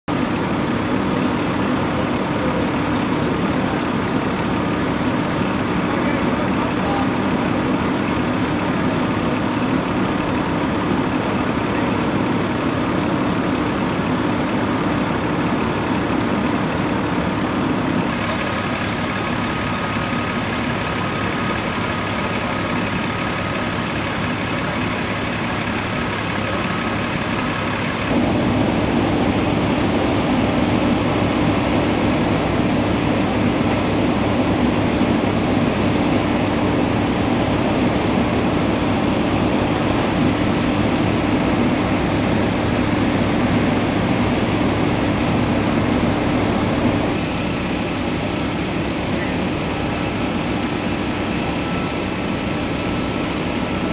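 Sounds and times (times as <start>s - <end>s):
fire engines idling: 0.0s - 53.9s.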